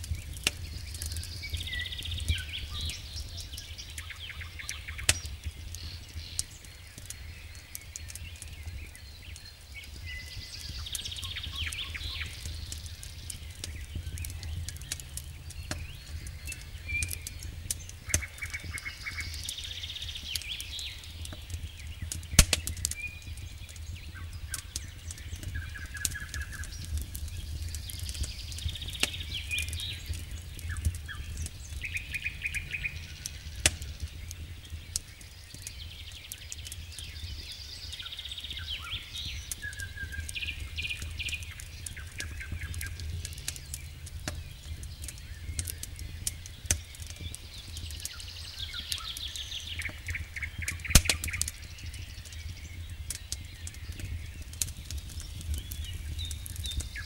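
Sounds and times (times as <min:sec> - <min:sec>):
campfire crackling and popping: 0:00.0 - 0:57.0
birds trilling: 0:10.3 - 0:35.7, 0:37.3 - 0:57.0
wood snaps: 0:22.2 - 0:23.0, 0:33.2 - 0:35.0, 0:45.0 - 0:48.2, 0:49.8 - 0:51.5
low rumble: 0:30.2 - 0:34.8.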